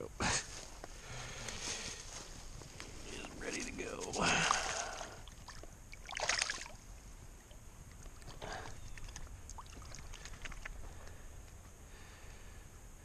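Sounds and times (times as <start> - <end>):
water splashing: 4.1 - 10.9
water dripping: 7.4 - 11.6.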